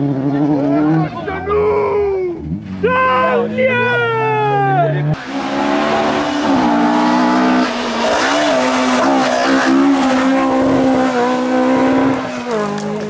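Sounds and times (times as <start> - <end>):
rally car engine at high revs: 0.0 - 1.2, 4.9 - 13.0.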